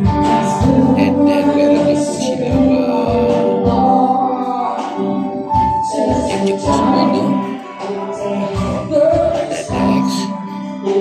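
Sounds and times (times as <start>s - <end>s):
live band playing: 0.0s - 11.0s
person singing: 0.0s - 11.0s
low drum beat: 8.5s - 10.3s.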